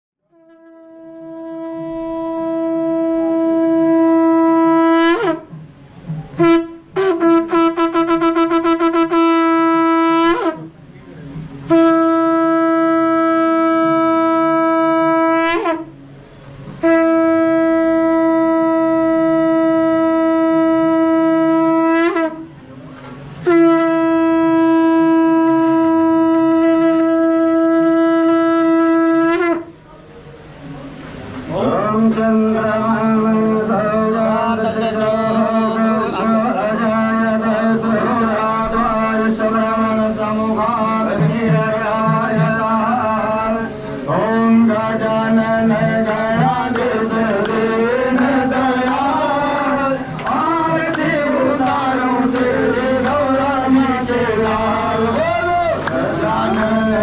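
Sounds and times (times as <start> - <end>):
conch shell blasts: 0.3 - 5.6, 6.3 - 10.8, 11.7 - 16.0, 16.8 - 22.6, 23.4 - 29.8, 55.2 - 57.0.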